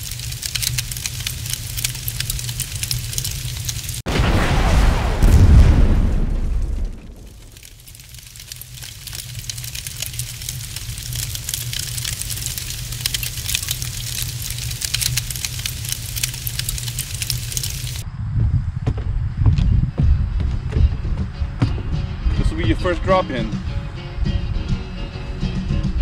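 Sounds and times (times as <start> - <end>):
fire crackling: 0.0 - 18.0
low rumble: 4.1 - 21.4.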